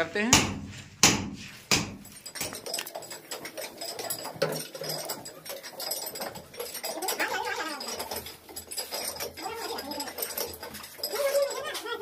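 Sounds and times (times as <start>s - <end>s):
hammer striking chisel into brick: 0.3s - 2.0s.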